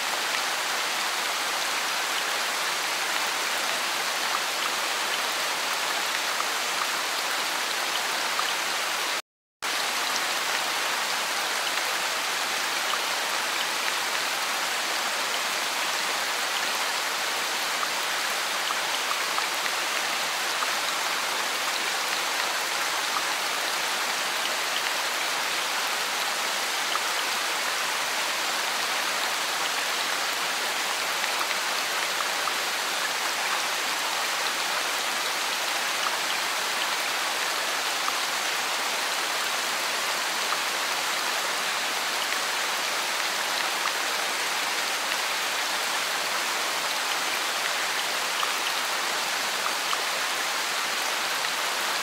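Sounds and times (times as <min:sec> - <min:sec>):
steady rain falling: 0:00.0 - 0:52.0.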